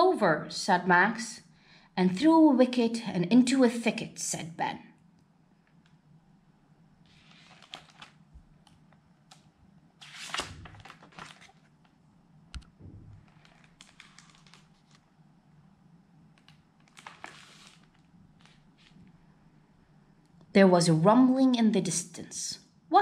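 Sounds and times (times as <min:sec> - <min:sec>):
low steady hum: 0:00.0 - 0:22.9
paper page rustling: 0:07.1 - 0:08.4, 0:10.0 - 0:12.0, 0:12.6 - 0:15.1, 0:16.4 - 0:19.1.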